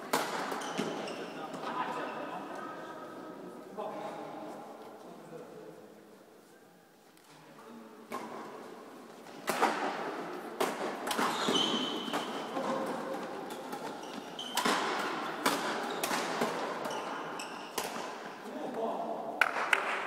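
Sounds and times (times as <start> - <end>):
racket hitting shuttlecock: 0.1 - 1.0, 9.3 - 18.4
shoe squeaks on court: 0.6 - 2.3, 11.2 - 12.4, 13.5 - 14.8, 16.8 - 17.8.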